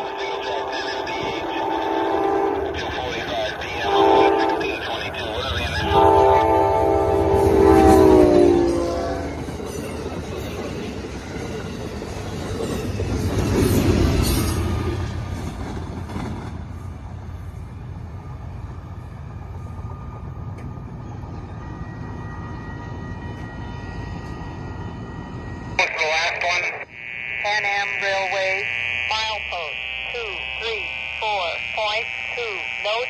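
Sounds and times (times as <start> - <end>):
train horn: 0.0 - 9.6
train wheels rumbling and clattering: 9.3 - 19.5.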